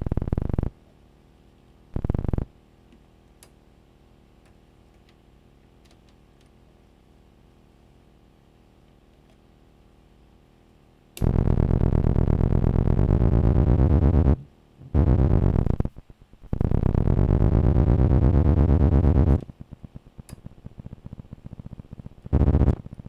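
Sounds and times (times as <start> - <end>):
distorted electronic buzzing drone: 0.0 - 0.7, 2.0 - 2.5, 11.2 - 23.0
faint rapid electronic ticking: 0.0 - 0.7, 2.0 - 2.5, 11.2 - 14.4, 15.0 - 23.0.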